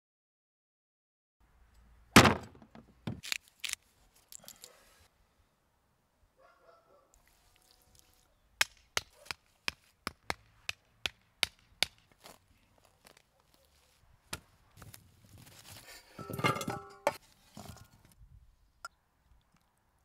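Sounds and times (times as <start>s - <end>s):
wooden stakes knocking: 2.2s - 3.3s, 8.6s - 12.3s
shovel blade thud: 2.2s - 3.4s.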